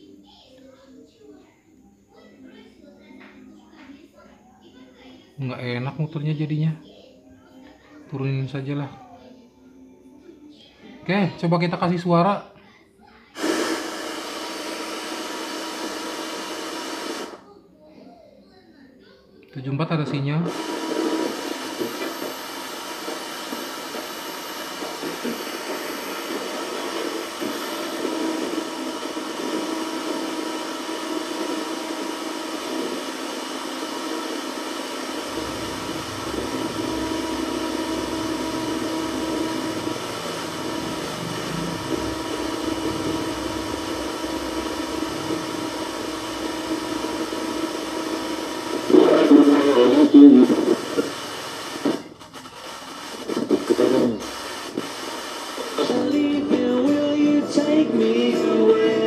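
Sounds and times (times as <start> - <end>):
radio static hiss: 13.2 - 17.5, 19.8 - 57.4
deep rumble: 35.3 - 48.0.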